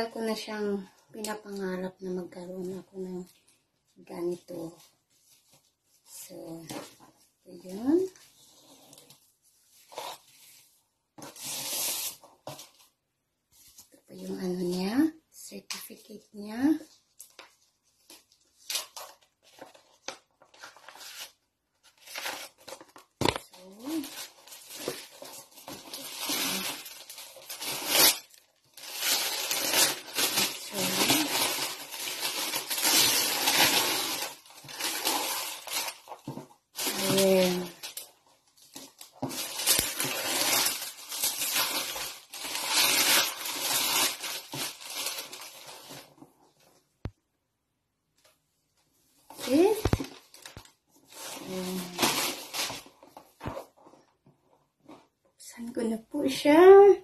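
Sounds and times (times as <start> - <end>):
paper envelope rustling: 17.1 - 46.1.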